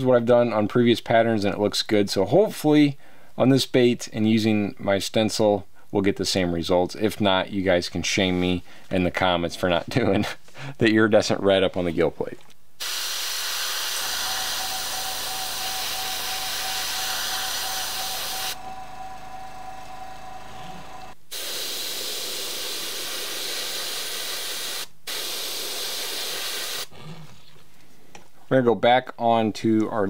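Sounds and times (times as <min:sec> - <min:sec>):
airbrush spraying paint: 0:12.8 - 0:19.6, 0:20.4 - 0:26.9.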